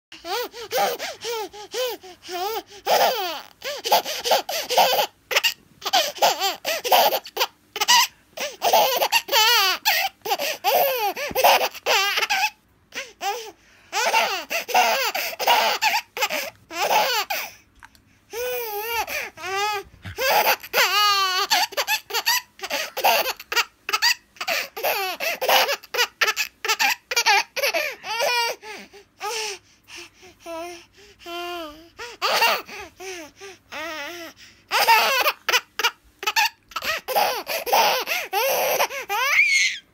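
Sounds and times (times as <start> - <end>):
baby giggling: 2.9 - 12.6, 18.5 - 28.6, 34.7 - 39.4.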